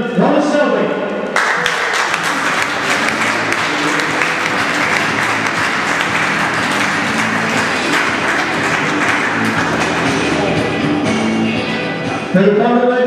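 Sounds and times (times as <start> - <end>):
audience applauding: 1.4 - 10.7.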